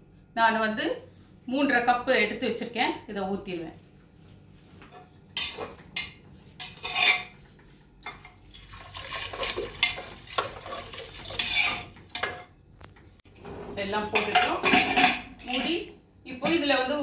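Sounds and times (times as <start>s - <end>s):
metal spoon scraping pot: 5.4s - 7.4s, 8.2s - 12.4s
water pouring into pot: 8.6s - 11.8s.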